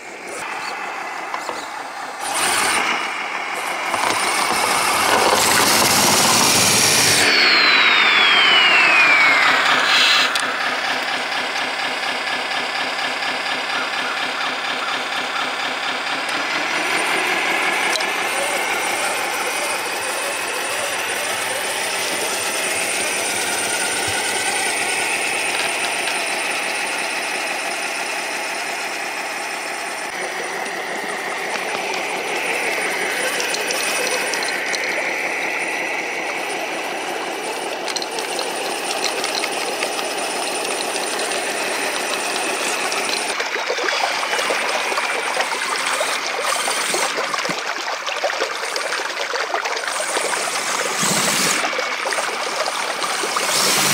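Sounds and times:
electric motors whining: 0:00.0 - 0:53.9
sharp clicks: 0:03.6 - 0:15.6, 0:17.8 - 0:27.4, 0:30.0 - 0:47.6.

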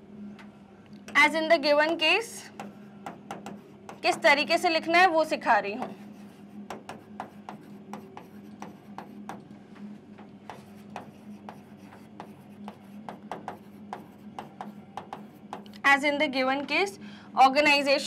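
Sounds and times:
faint steady hum: 0:00.0 - 0:18.0
pen taps and scratches on touchscreen: 0:01.8 - 0:04.4, 0:05.8 - 0:15.8.

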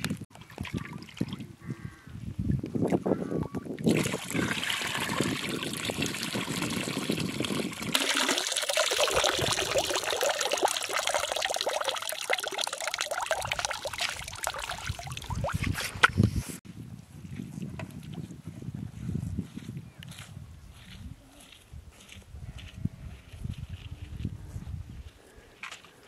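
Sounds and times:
water trickling and splashing: 0:00.3 - 0:01.5, 0:03.8 - 0:16.2.

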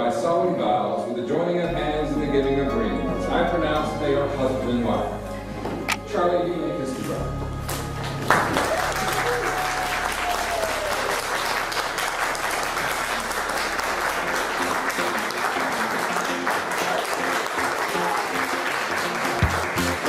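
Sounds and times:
faint music: 0:00.0 - 0:20.0
people applauding: 0:07.6 - 0:20.0.

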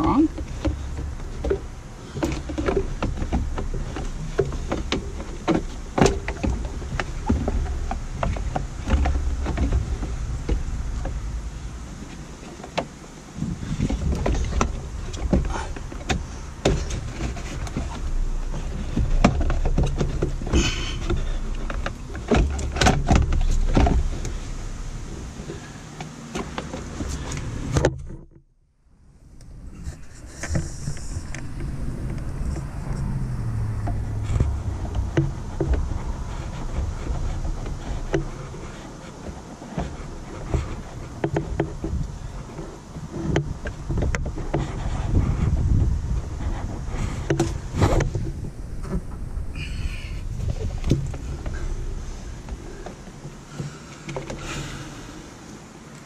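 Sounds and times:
microphone rubbing and bumping: 0:13.3 - 0:25.4, 0:29.3 - 0:53.4.

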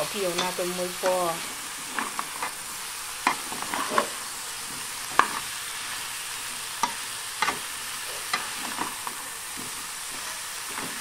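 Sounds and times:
vegetables sizzling in a frying pan: 0:00.0 - 0:11.0.

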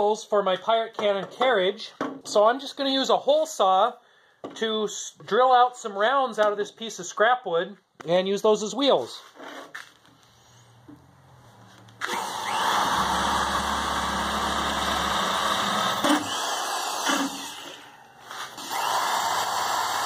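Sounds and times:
electric drill cutting wood: 0:12.0 - 0:20.0.

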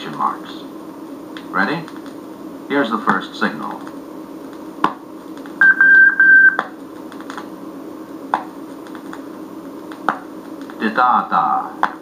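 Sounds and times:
record surface noise: 0:03.0 - 0:07.6, 0:08.2 - 0:11.0
morse code tone: 0:05.6 - 0:06.6.

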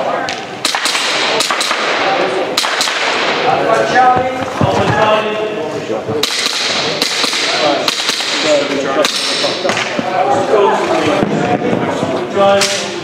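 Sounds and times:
airsoft pistol shots: 0:00.6 - 0:03.4, 0:06.2 - 0:09.5.

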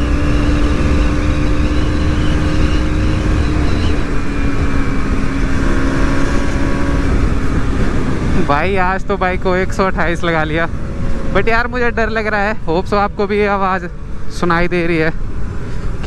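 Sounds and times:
low wind rumble: 0:00.0 - 0:16.0
motorcycle engine drone: 0:00.0 - 0:16.0
faint whistle: 0:00.9 - 0:04.0.

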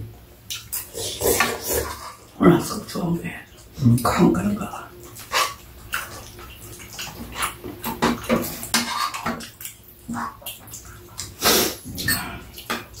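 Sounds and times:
chewing and slurping: 0:00.5 - 0:02.4, 0:05.0 - 0:13.0.

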